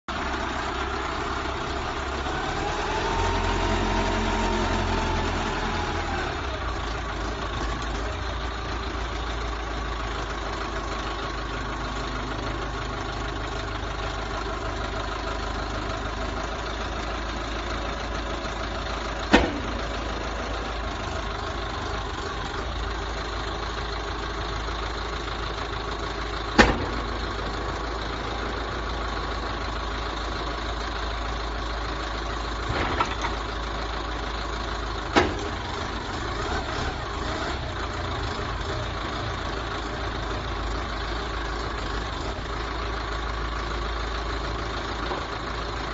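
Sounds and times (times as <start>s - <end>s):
diesel engine running: 0.0s - 45.9s
sharp knocks: 19.3s - 20.0s, 26.6s - 27.4s.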